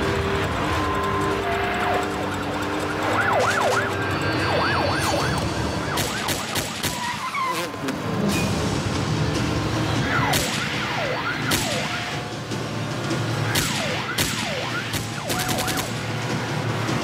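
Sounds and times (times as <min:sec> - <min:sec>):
police siren wailing: 0:00.0 - 0:07.6, 0:10.0 - 0:12.5, 0:13.4 - 0:17.0
engines rumbling: 0:00.0 - 0:17.0
pistol shots: 0:05.9 - 0:07.2, 0:13.5 - 0:16.0.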